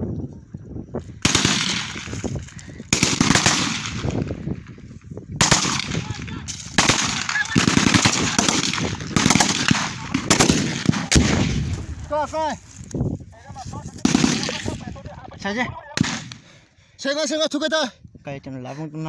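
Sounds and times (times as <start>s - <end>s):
automatic gunfire bursts: 1.2s - 2.0s, 2.9s - 4.1s, 5.4s - 6.0s, 6.8s - 11.6s, 14.0s - 14.7s.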